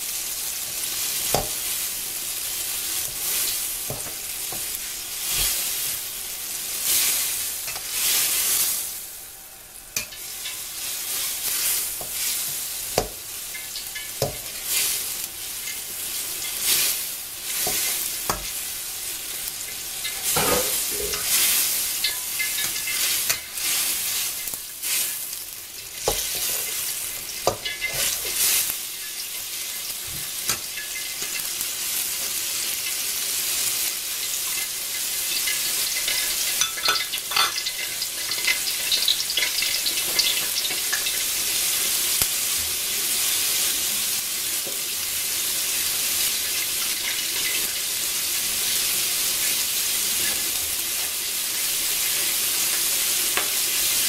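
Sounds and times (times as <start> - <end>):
food sizzling in a wok: 0.0 - 54.0
spatula scraping pan: 19.7 - 25.2, 26.0 - 29.4, 34.2 - 41.2.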